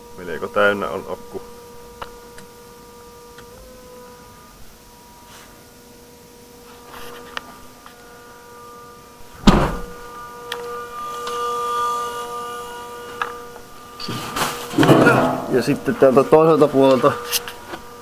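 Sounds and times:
steady electrical whine: 0.0s - 18.0s
car door slamming: 9.4s - 9.9s.

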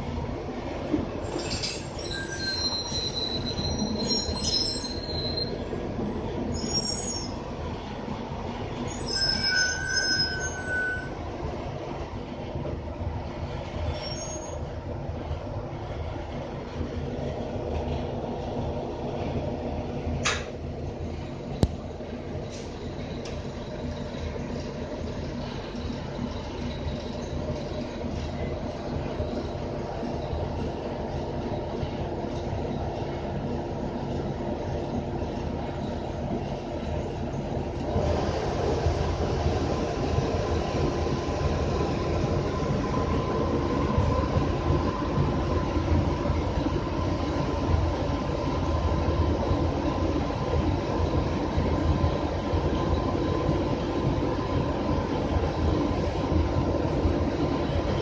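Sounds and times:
bus interior rumble: 0.0s - 58.0s
high metallic squeals: 1.3s - 5.6s, 6.5s - 7.4s, 8.9s - 11.2s, 13.9s - 14.6s.

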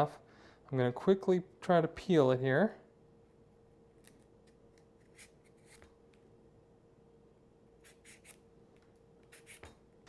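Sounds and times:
faint steady hum: 0.0s - 10.0s
vegetable peeler scraping squash skin: 5.0s - 5.9s, 7.8s - 8.4s, 9.2s - 9.7s.

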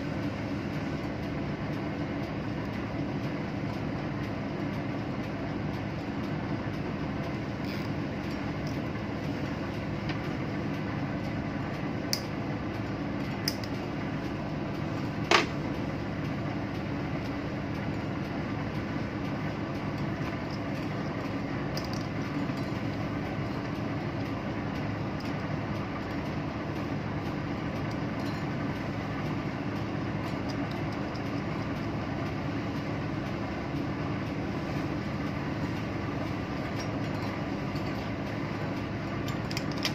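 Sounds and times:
ship machinery droning: 0.0s - 39.9s.

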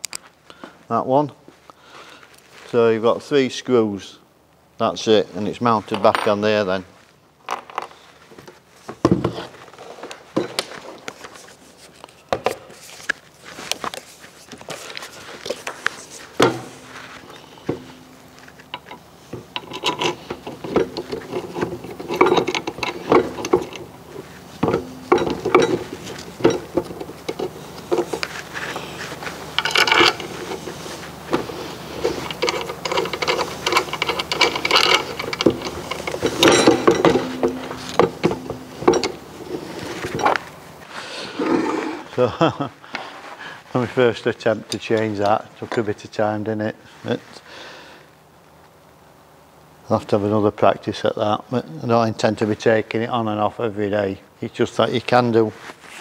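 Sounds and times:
metal clicks and knocks: 17.7s - 28.4s, 29.6s - 30.6s, 31.3s - 40.4s.

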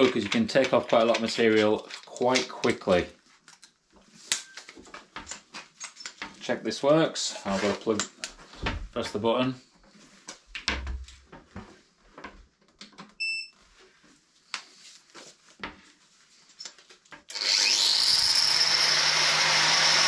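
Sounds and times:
angle grinder whine: 17.3s - 20.0s.

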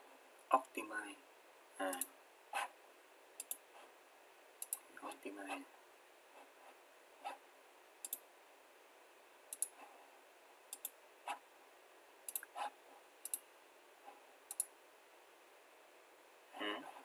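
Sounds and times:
faint steady hiss: 0.0s - 17.0s
computer mouse buttons clicking: 3.4s - 3.6s, 4.6s - 4.9s, 8.0s - 8.2s, 9.5s - 9.8s, 10.7s - 11.0s, 12.3s - 12.6s, 13.2s - 13.4s, 14.5s - 14.7s.

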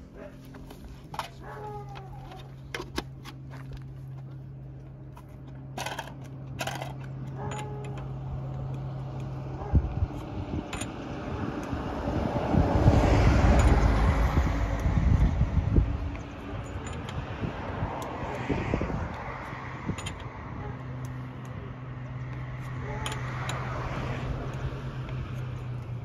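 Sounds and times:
vehicle approaching rumble: 0.0s - 26.0s
metal clicks and knocks: 16.0s - 17.3s, 19.1s - 20.4s.

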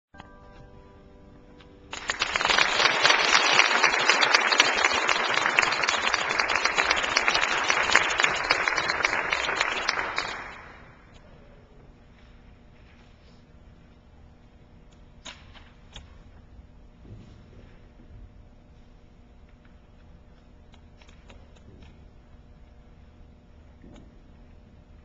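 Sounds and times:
piano chord: 0.2s - 1.9s
audience applauding: 1.9s - 11.1s.

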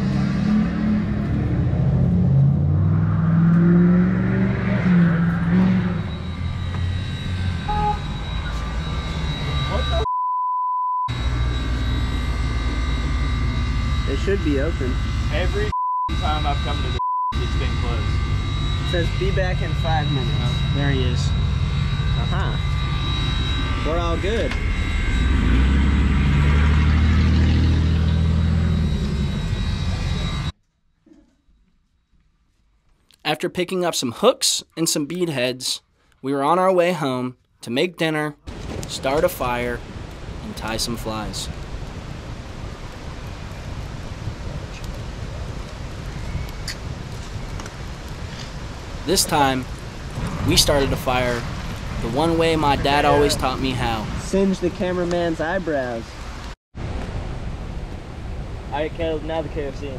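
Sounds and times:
car engine passing by: 0.0s - 6.4s, 25.3s - 30.5s
vehicle engine droning: 0.0s - 10.1s, 11.1s - 30.6s, 38.5s - 59.9s.

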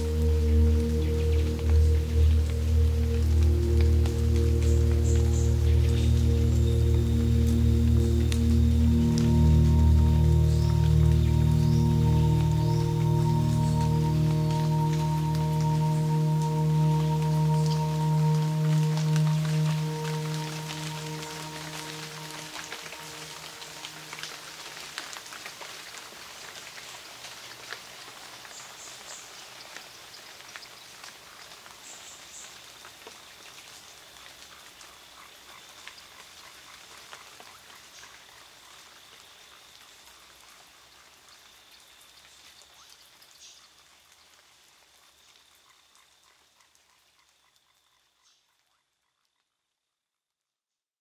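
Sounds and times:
faint steady high tone: 0.0s - 24.6s
ambient electronic music: 0.0s - 24.8s.

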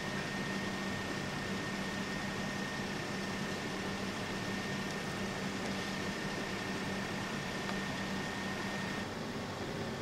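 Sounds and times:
low machine hum and hiss: 0.0s - 10.0s
high-pitched whine: 3.9s - 9.1s.

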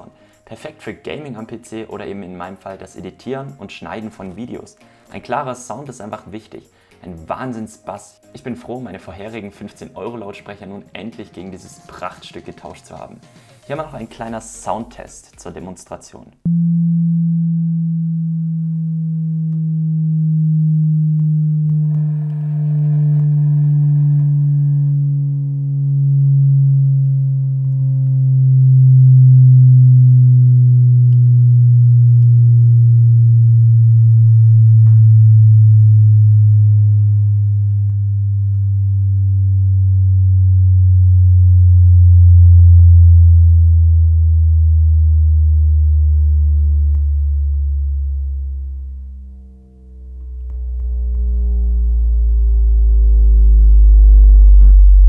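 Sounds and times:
bass test tone sliding down: 16.5s - 55.0s.

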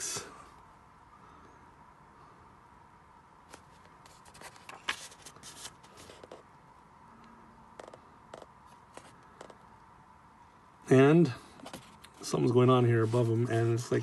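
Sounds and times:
paper pages rustling: 3.5s - 6.5s, 11.6s - 13.6s
fingers tapping on paper: 7.8s - 9.6s.

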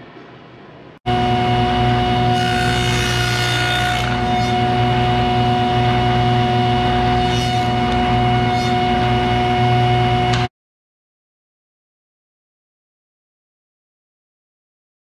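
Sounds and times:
table saw motor hum: 1.1s - 10.5s.

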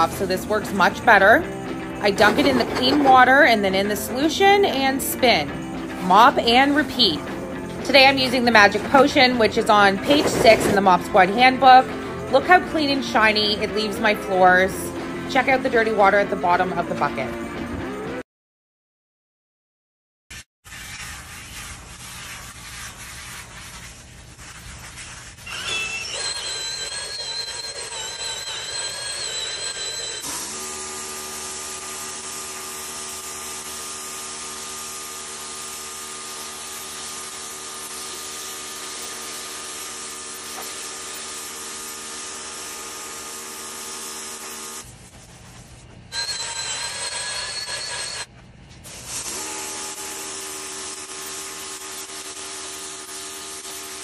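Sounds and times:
high whistling tone: 25.4s - 30.2s
pressure washer water jet hissing: 48.9s - 54.0s.

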